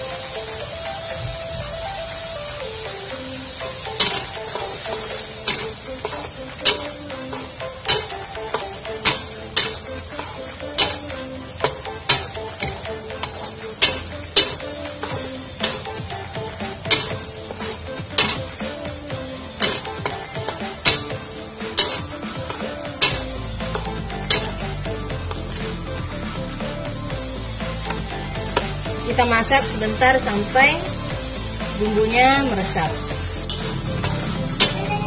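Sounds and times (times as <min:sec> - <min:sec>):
frying sizzle: 0:00.0 - 0:35.0
metal spatula clacking on wok: 0:04.0 - 0:09.8, 0:10.8 - 0:11.1, 0:21.8 - 0:24.5.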